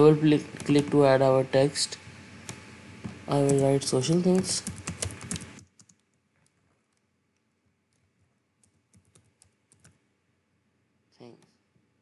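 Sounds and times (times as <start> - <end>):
typing on computer keyboard: 3.4 - 7.0, 7.9 - 10.0.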